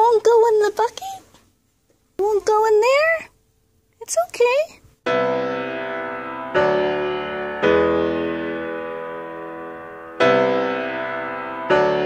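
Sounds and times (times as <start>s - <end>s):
piano chords ringing: 5.1s - 12.0s.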